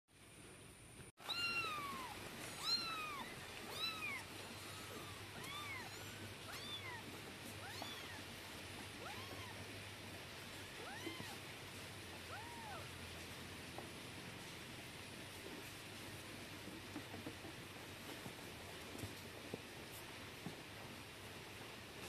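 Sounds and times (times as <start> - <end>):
kittens mewing: 1.2 - 8.4.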